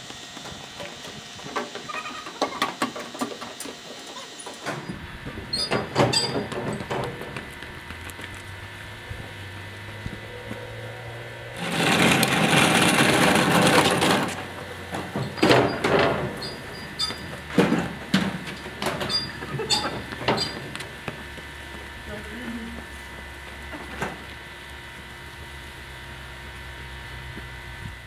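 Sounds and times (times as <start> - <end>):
quick footsteps: 6.4 - 8.6
plastic wheels rattling on pavement: 11.6 - 14.5.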